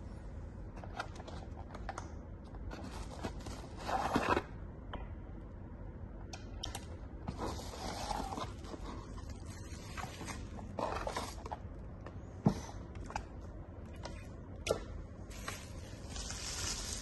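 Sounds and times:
cardboard and plastic packaging rustling: 0:02.7 - 0:04.4, 0:07.3 - 0:11.6, 0:15.3 - 0:17.0.

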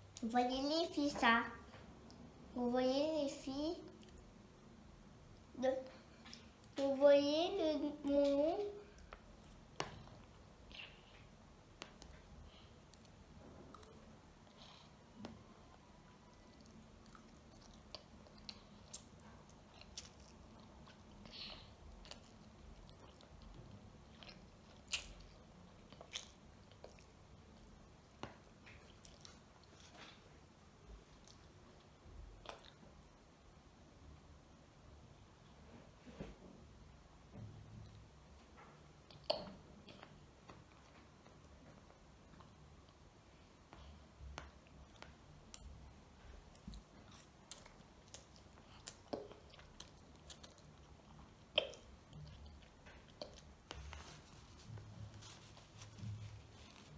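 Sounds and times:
child chewing and slurping noodles: 0:42.0 - 0:56.9.

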